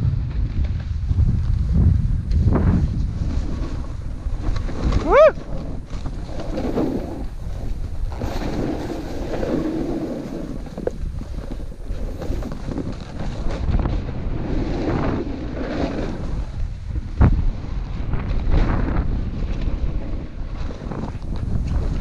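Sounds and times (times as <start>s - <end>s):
wind buffeting microphone: 0.0s - 22.0s
snowboard hissing through snow: 6.5s - 10.6s.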